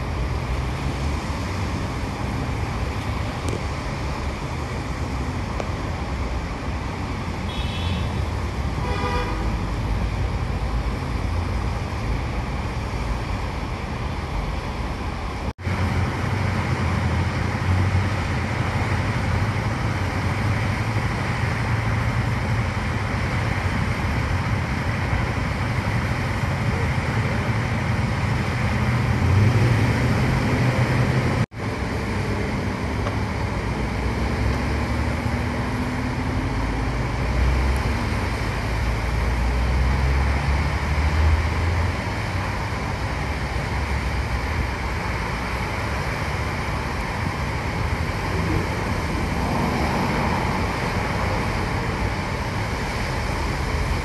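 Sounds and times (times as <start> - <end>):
highway traffic on wet pavement: 0.0 - 54.0
car horn toot: 7.5 - 8.2, 8.8 - 9.6.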